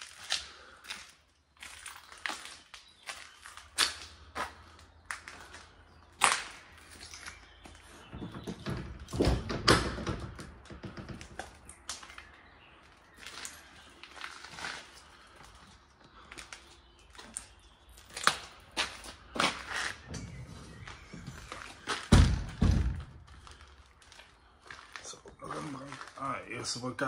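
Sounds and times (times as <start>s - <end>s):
footsteps crunching debris: 0.0s - 7.9s, 11.5s - 26.3s.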